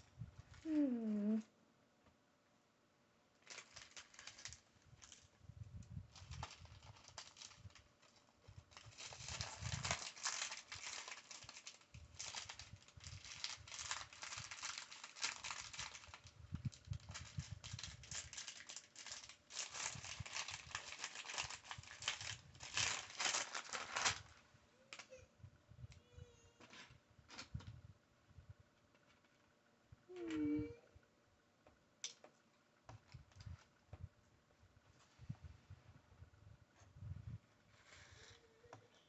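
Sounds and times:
plastic bag crinkling: 0:03.4 - 0:05.3, 0:06.1 - 0:25.1.

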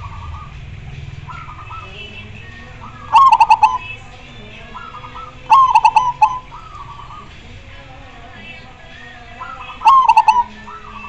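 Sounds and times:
dove staccato cooing: 0:00.0 - 0:07.6, 0:09.0 - 0:11.0
faint dove coos: 0:02.9 - 0:03.9, 0:04.8 - 0:07.3, 0:09.4 - 0:11.0.

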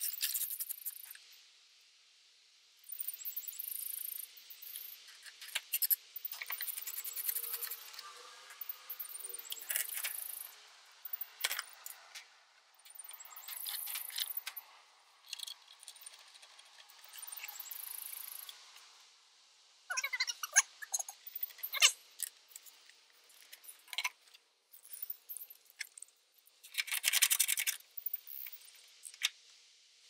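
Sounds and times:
metallic clicking and jingling tools: 0:00.0 - 0:01.2, 0:02.9 - 0:08.0, 0:08.6 - 0:12.1, 0:12.8 - 0:14.6, 0:15.2 - 0:18.6.

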